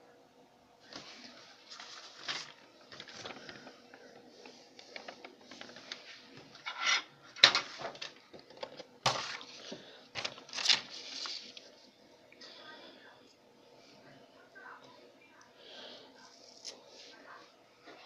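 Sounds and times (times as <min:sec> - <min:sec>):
paper rustling: 0:00.9 - 0:06.8, 0:07.4 - 0:11.9.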